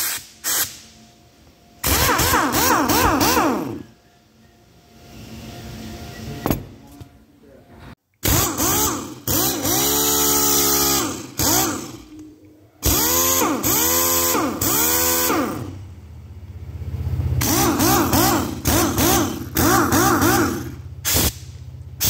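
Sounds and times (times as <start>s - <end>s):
exhaust air hiss: 0.0s - 1.0s, 20.7s - 22.0s
impact wrench air motor whine: 0.0s - 1.0s, 1.8s - 4.0s, 8.2s - 15.9s, 17.2s - 22.0s.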